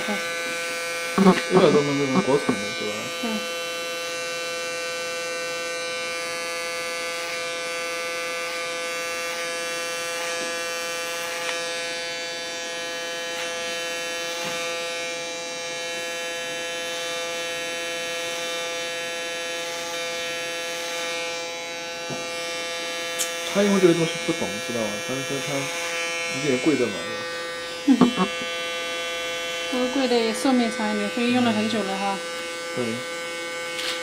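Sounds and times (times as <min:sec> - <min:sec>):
electric hair clipper buzzing: 0:00.0 - 0:34.0
clipper blade rasping on hair: 0:08.4 - 0:11.9, 0:13.3 - 0:15.0, 0:22.0 - 0:23.6, 0:25.6 - 0:26.4, 0:27.0 - 0:34.0.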